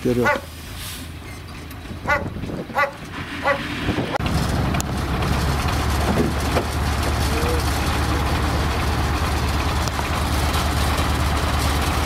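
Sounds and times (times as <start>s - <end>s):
truck engine running: 0.0s - 12.0s
dog barking: 0.2s - 0.5s, 2.1s - 3.7s.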